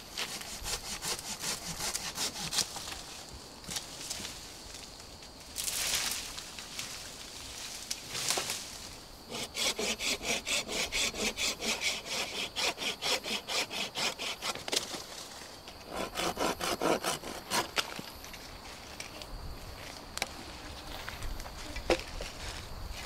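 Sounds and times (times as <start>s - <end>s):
saw cutting through wooden log: 0.1s - 2.8s, 9.3s - 14.7s, 15.9s - 17.8s.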